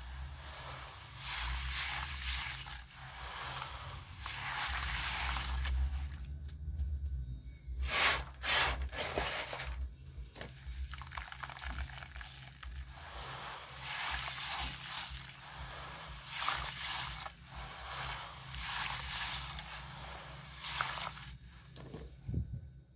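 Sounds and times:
wet squishing and sloshing: 0.2 - 6.7, 10.3 - 21.4.

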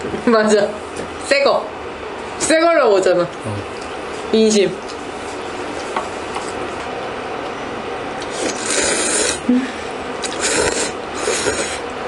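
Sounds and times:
noodles slurping: 8.2 - 9.5, 10.2 - 11.9.

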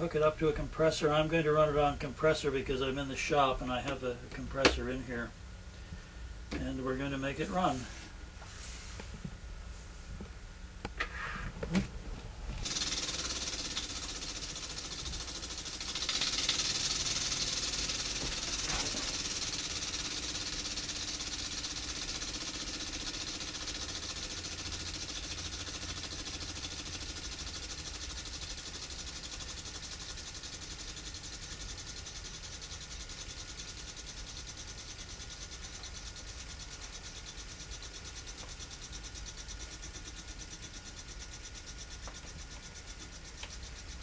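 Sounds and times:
steam engine exhaust puffs: 12.6 - 44.0.

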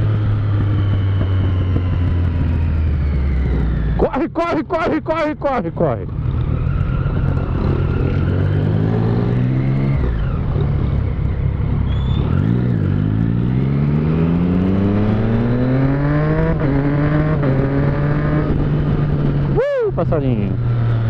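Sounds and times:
motorcycle engine accelerating: 0.0 - 21.0.

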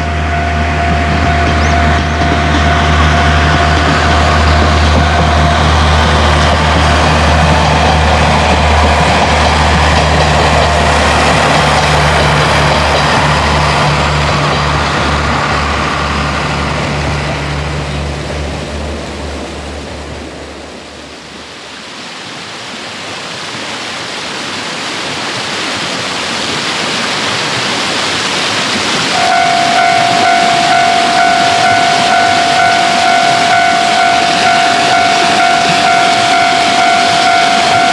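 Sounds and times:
diesel railcar engine drumming: 0.0 - 21.2, 29.1 - 37.9
level-crossing bell ringing: 29.1 - 37.9.

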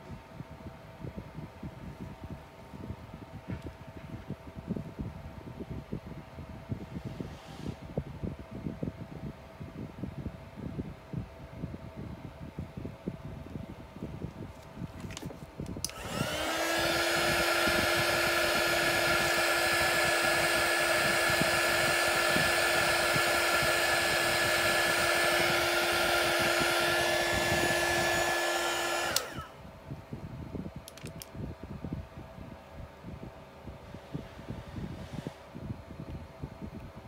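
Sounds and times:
hot-air blower motor humming: 15.1 - 37.0.

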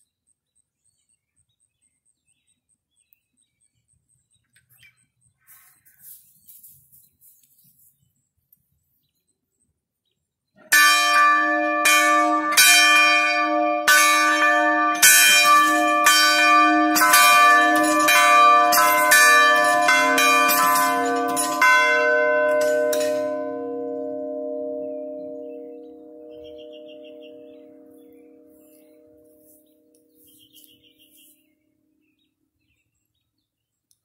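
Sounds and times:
tower bells clanging: 10.6 - 30.2.

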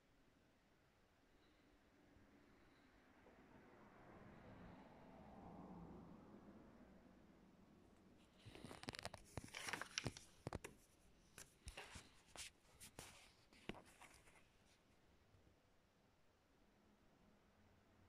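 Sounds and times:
paper rustling: 8.2 - 14.8.

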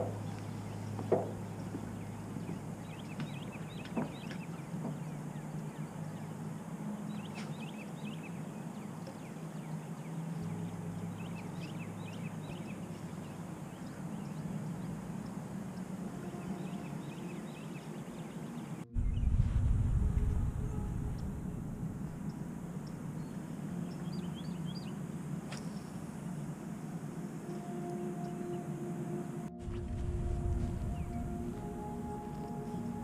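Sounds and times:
steady low hum: 0.0 - 33.0
loud low rumble: 18.8 - 23.8, 29.5 - 32.2.

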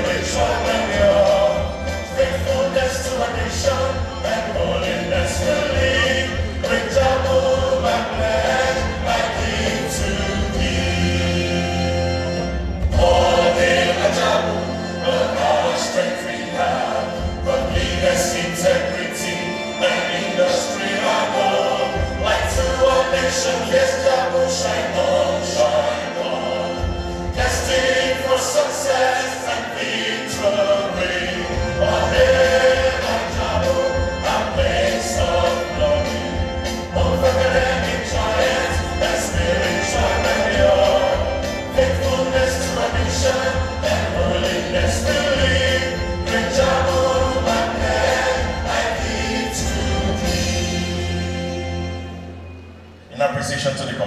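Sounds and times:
bass line: 0.0 - 15.8, 30.7 - 52.1
choir singing a gospel hymn: 0.0 - 52.6
instrumental accompaniment: 0.0 - 53.2.

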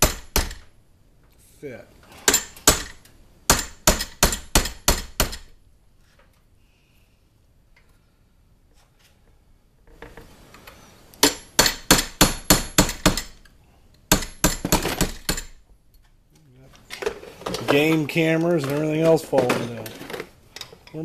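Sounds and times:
hammer striking metal punch: 0.0 - 0.7, 2.3 - 5.5, 11.2 - 13.4, 14.1 - 15.5.

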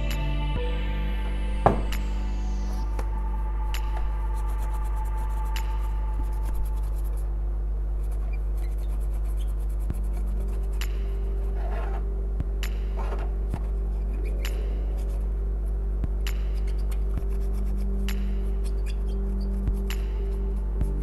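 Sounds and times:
low electrical hum: 0.0 - 21.0
brush scrubbing circuit board: 8.0 - 12.0.

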